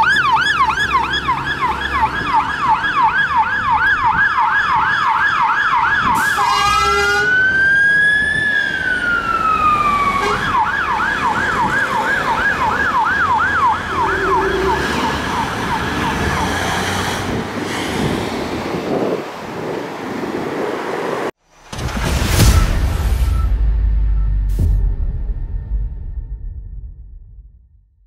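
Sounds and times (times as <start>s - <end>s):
fire engine siren: 0.0s - 17.6s
horn blast: 6.2s - 7.4s, 10.2s - 10.6s, 13.9s - 17.2s.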